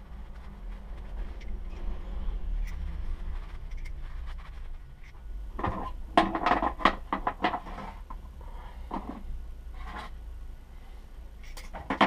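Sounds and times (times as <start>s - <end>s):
steady low hum: 0.0s - 12.0s
metal parts clinking: 11.4s - 12.0s.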